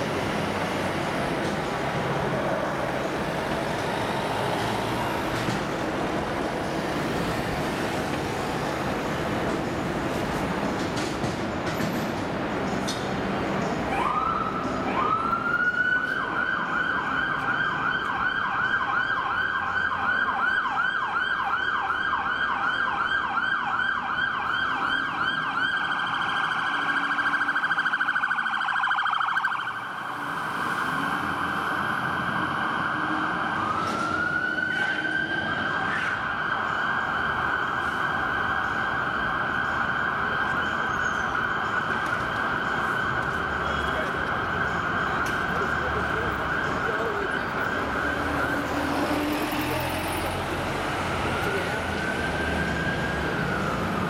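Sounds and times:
fire engine siren yelping: 13.9s - 54.0s.

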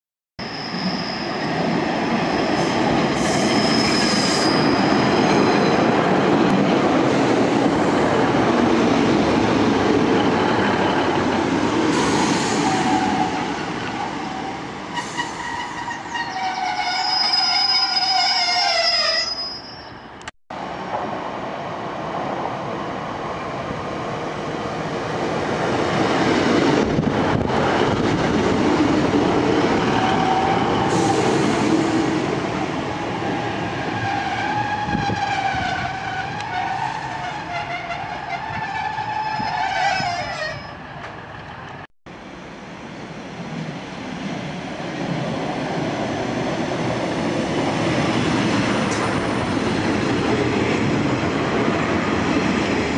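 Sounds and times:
train braking whine: 0.4s - 5.8s
high wheel squeal: 0.4s - 5.9s, 11.9s - 20.2s, 33.9s - 40.9s.

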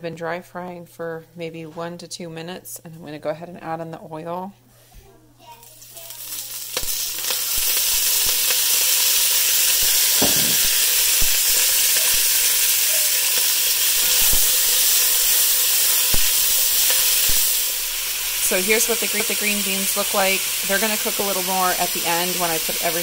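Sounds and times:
beans sizzling in hot oil: 5.5s - 23.0s
small knocks and pops: 10.2s - 11.5s.

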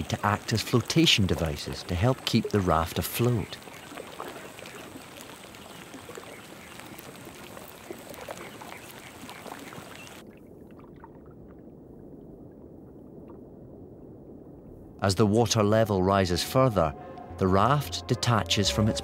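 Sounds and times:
water trickling and lapping: 0.0s - 19.0s
faint small ticks: 3.4s - 10.2s.

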